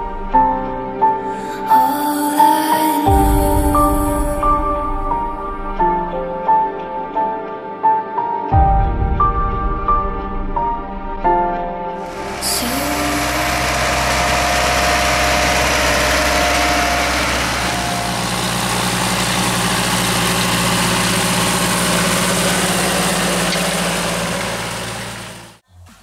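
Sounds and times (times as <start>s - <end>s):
tractor diesel engine running: 12.1s - 25.6s.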